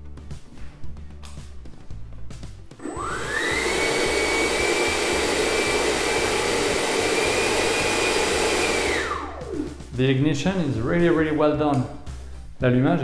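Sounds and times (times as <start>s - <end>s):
ducted fan whining: 2.8s - 9.8s.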